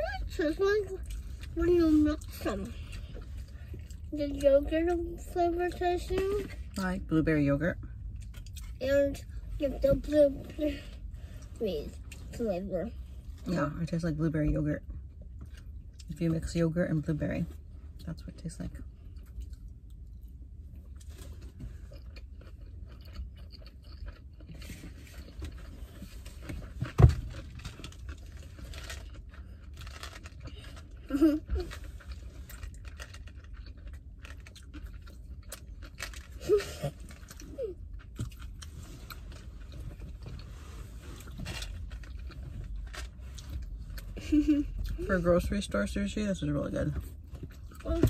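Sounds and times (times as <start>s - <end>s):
low steady hum: 0.0s - 48.0s
chewing and munching: 18.8s - 45.0s.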